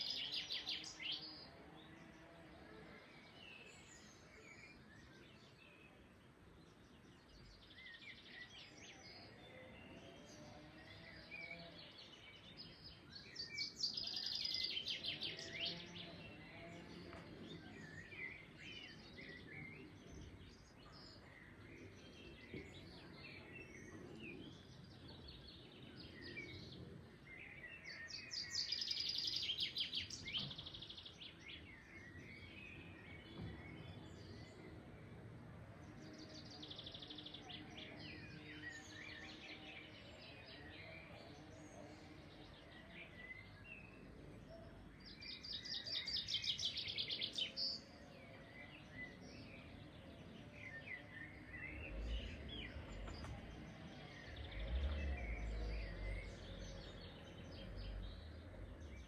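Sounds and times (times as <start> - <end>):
songbirds trilling: 0.0 - 59.0
bird chirps: 36.0 - 59.0.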